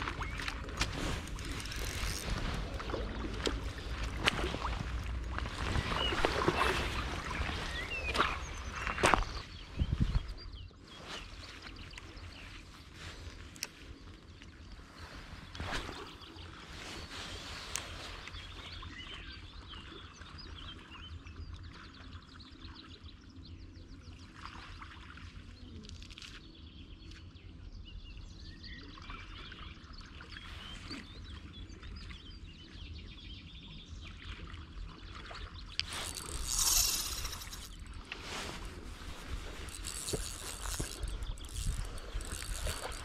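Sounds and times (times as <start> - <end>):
small birds chirping: 5.4 - 24.0, 35.4 - 43.0
loud close rustle: 35.8 - 43.0.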